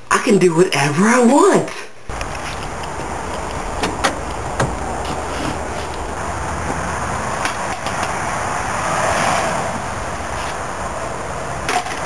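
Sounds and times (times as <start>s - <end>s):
car passing: 2.1s - 11.7s
street traffic: 2.1s - 12.0s.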